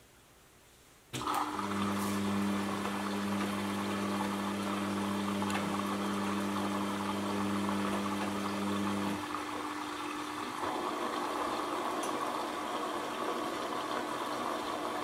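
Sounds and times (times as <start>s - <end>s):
washing machine pump hum: 1.2s - 15.0s.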